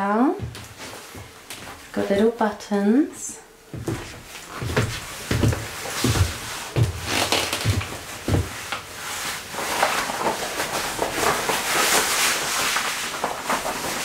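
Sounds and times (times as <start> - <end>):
footsteps on wooden floor: 0.3 - 2.3, 3.7 - 9.3
leather rustling and creaking: 4.0 - 14.0.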